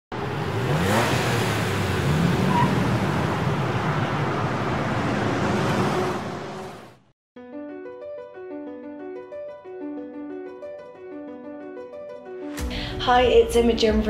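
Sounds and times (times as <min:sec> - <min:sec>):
engine accelerating: 0:00.1 - 0:07.0
vehicles driving by: 0:00.1 - 0:07.1.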